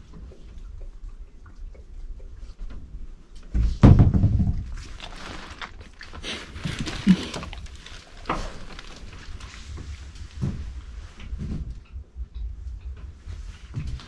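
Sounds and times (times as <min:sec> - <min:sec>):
heavy thump: 0:03.6 - 0:04.6
rustling handling noise: 0:04.7 - 0:11.6.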